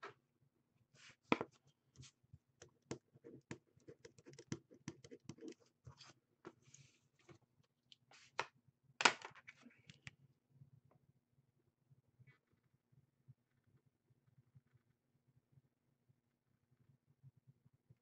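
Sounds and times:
pen scratching on paper: 2.7 - 6.2.

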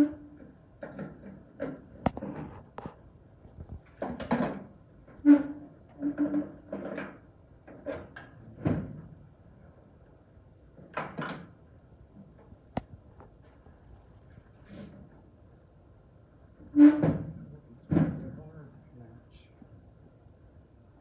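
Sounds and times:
knocks and clunks: 0.0 - 9.2, 16.6 - 18.4.

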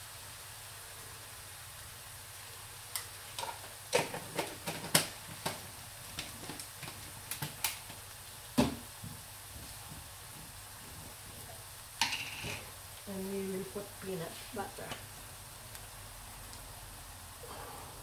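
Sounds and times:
paste sizzling in a wok: 0.0 - 18.0.

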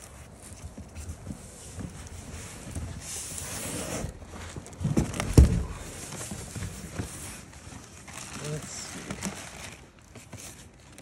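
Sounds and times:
cardboard flaps rustling and scraping: 0.0 - 11.0
dull thumps: 4.8 - 6.7.

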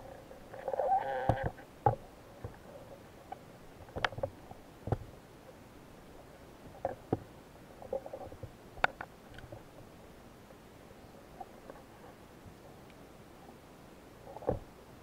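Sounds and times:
faint background hiss: 0.0 - 15.0
sharp underwater clicks and knocks: 3.3 - 5.1, 7.9 - 9.7.

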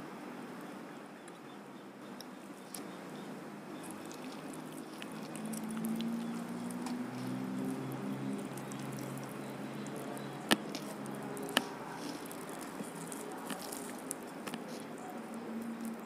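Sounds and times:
fried chicken skin crackling: 3.7 - 16.0.

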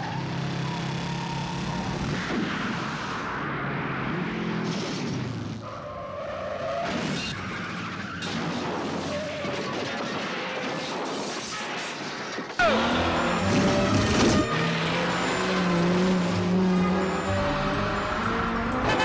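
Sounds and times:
tyres skidding and squealing: 0.0 - 10.6, 12.6 - 19.0
car engine revving: 12.6 - 19.0
motorcycle engine revving: 12.6 - 19.0.

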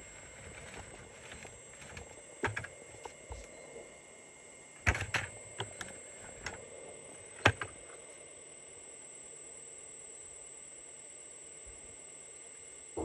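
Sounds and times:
faint steady hum: 0.0 - 13.0
toy excavator clicks and knocks: 0.5 - 3.2.

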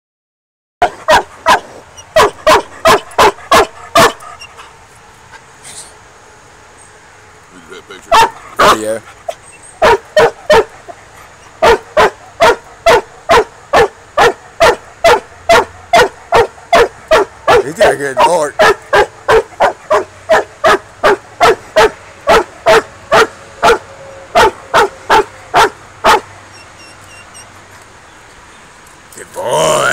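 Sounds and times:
dog barking: 0.8 - 4.4, 8.1 - 8.9, 9.8 - 10.9, 11.5 - 26.3.

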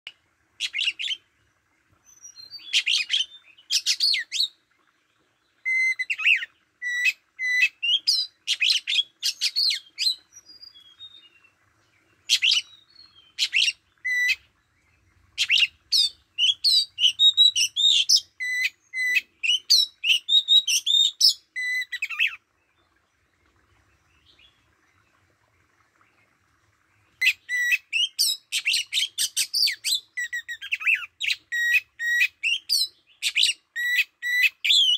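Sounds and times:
bird singing whistled phrases: 5.6 - 11.4, 12.3 - 14.4, 15.4 - 22.4, 27.2 - 34.9.

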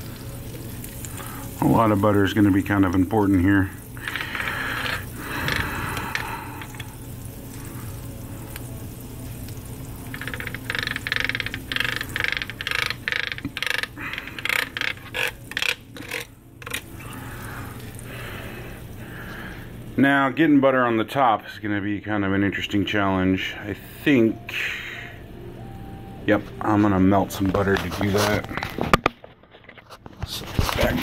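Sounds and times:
butter sizzling on a grill: 0.0 - 21.1.

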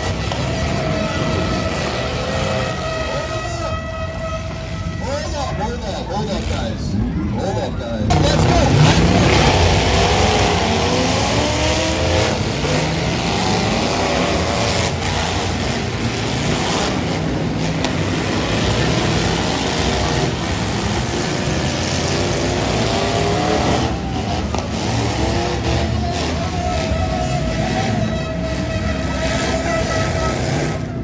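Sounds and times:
vehicles colliding knocks: 0.0 - 3.0, 8.1 - 31.0
car engines revving hard: 0.0 - 5.0, 5.6 - 31.0.

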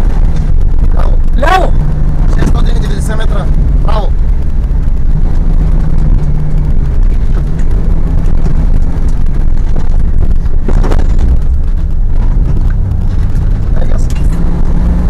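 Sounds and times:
car engine drone: 0.0 - 15.0
road noise: 0.0 - 15.0.

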